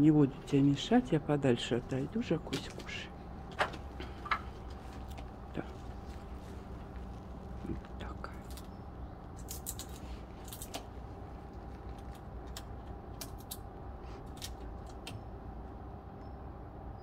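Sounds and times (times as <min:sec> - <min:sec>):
low background rumble: 0:00.0 - 0:17.0
bird pecking clicks: 0:09.3 - 0:10.9, 0:11.9 - 0:13.6, 0:14.3 - 0:15.2.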